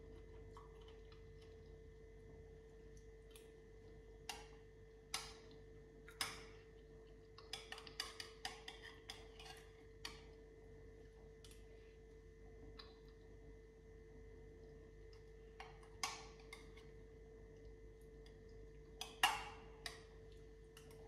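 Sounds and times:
faint steady hum: 0.0 - 21.0
spoon clicking and scraping: 7.3 - 10.4, 18.2 - 21.0.

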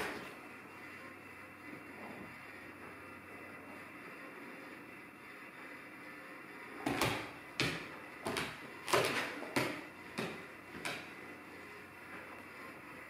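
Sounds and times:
dog paws knocking on hardwood floor: 6.9 - 11.1.

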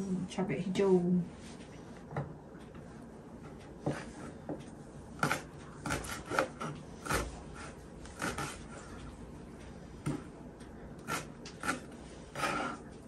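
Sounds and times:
knife chopping on cutting board: 5.2 - 8.8.

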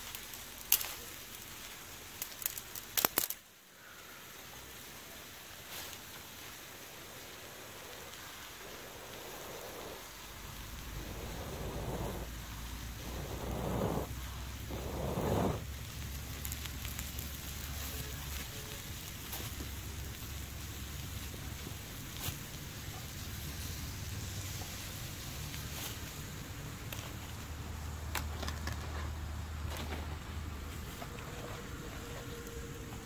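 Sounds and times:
prawns sizzling in a pan: 0.0 - 28.0
person blowing on embers: 3.2 - 27.9
breath rumble on microphone: 7.0 - 27.4.

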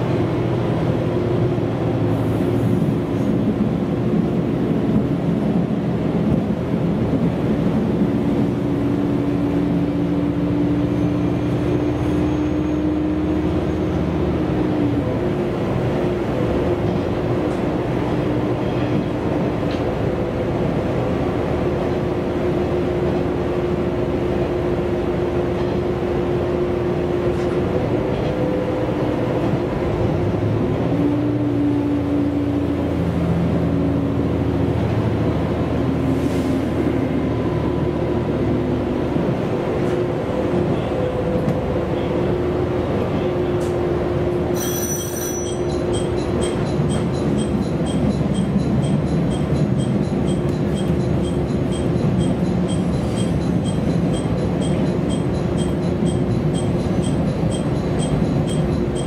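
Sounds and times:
railcar engine hum: 0.0 - 59.0
wheels on rails: 42.8 - 59.0
repeating bell ring: 44.6 - 59.0.

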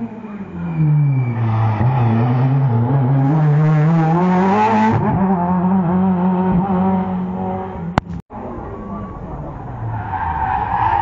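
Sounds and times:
rally car engine accelerating: 0.0 - 11.0.

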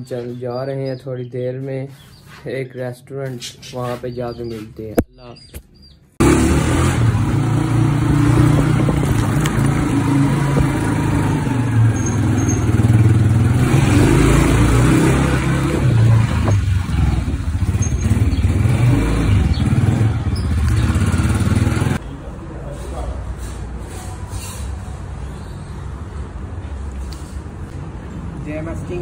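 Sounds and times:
motorcycle engine running: 6.2 - 22.0
wind noise on microphone: 15.6 - 18.2.

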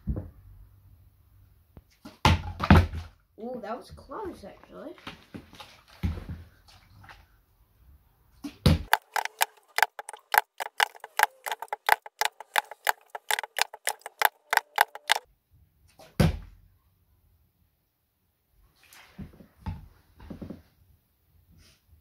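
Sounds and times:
fast sharp clicks: 8.9 - 15.2.

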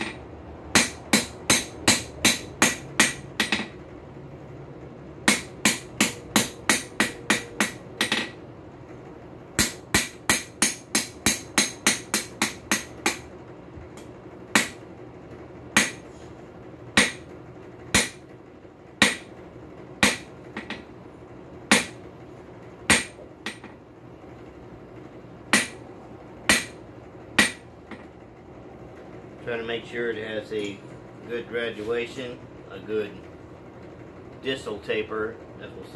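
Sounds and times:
hammer striking steel on anvil: 0.0 - 3.7, 5.3 - 8.4, 9.6 - 13.2, 14.6 - 14.8, 15.8 - 16.0, 17.0 - 17.2, 17.9 - 18.2, 19.0 - 19.3, 20.0 - 20.9, 21.7 - 22.0, 22.9 - 23.8, 25.5 - 25.8, 26.5 - 26.8, 27.4 - 27.6.

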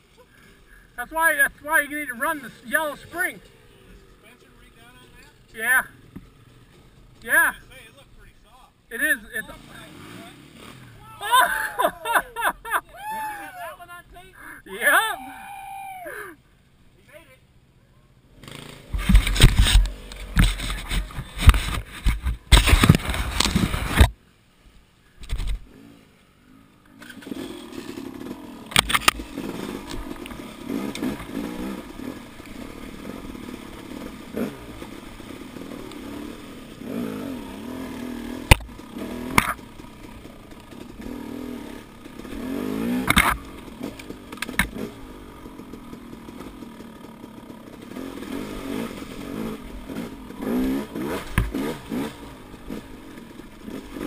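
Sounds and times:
dirt bike engine: 0.0 - 54.0
bike clattering over rough ground: 18.4 - 24.2, 26.9 - 32.8, 38.4 - 41.2, 41.9 - 49.3.

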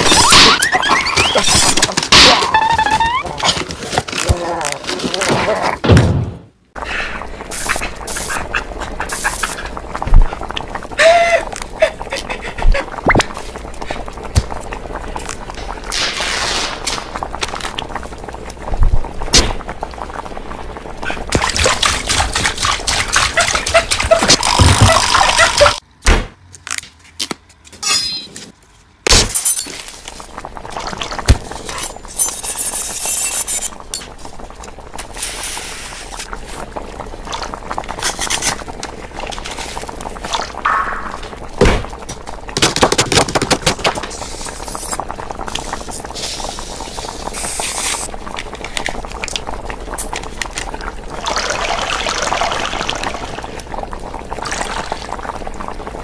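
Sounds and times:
liquid pouring: 44.2 - 56.0.

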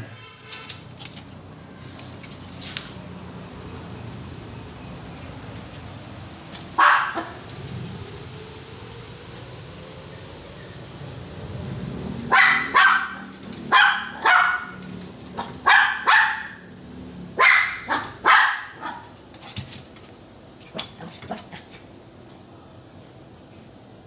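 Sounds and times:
dog barking: 6.8 - 7.4, 12.3 - 14.8, 15.4 - 16.7, 17.4 - 19.1.

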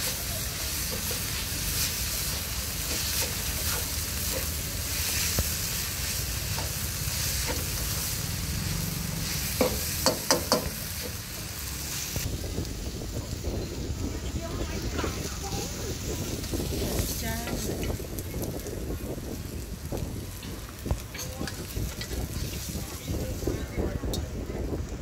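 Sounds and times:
spatula stirring food: 0.0 - 8.2
chicken sizzling in a wok: 0.0 - 25.0
spatula knocking on pan: 9.6 - 10.8.

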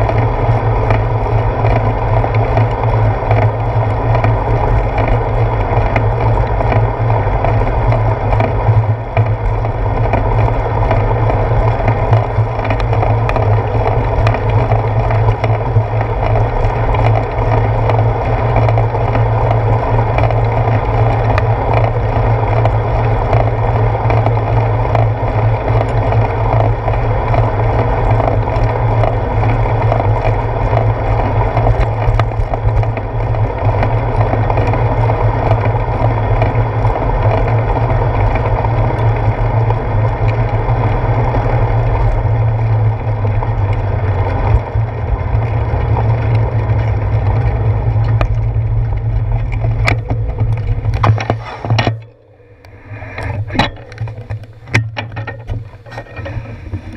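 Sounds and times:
bike rattles and clicks: 0.0 - 56.9
wind on microphone: 46.4 - 56.9.

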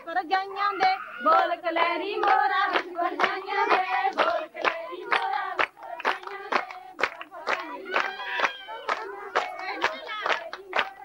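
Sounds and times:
women singing: 0.0 - 11.0
hand claps: 2.2 - 11.0.

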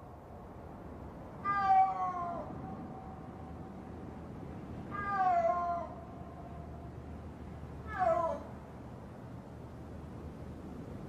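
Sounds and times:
snow leopard yowling: 4.9 - 6.0, 7.8 - 8.6.

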